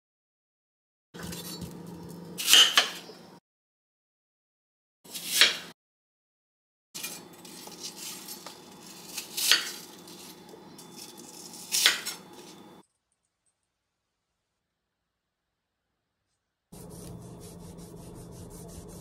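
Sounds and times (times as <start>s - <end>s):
knife slicing apples: 5.1s - 5.7s, 7.0s - 12.6s.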